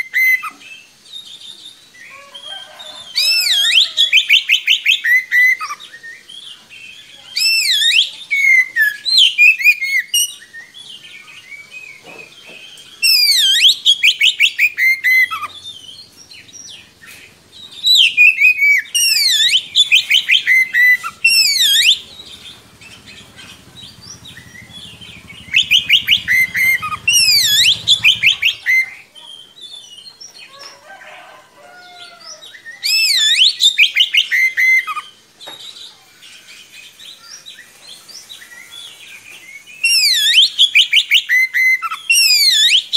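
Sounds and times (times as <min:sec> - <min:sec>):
bird singing whistled phrases: 0:00.0 - 0:00.6, 0:03.1 - 0:10.8, 0:13.0 - 0:16.8, 0:17.6 - 0:30.0, 0:32.4 - 0:35.2, 0:37.2 - 0:42.9.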